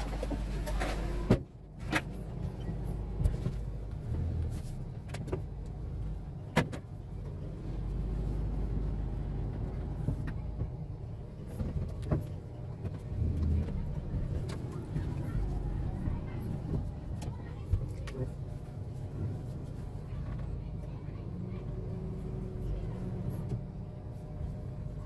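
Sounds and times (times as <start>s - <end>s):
knocks and clicks in cab: 6.4s - 7.0s.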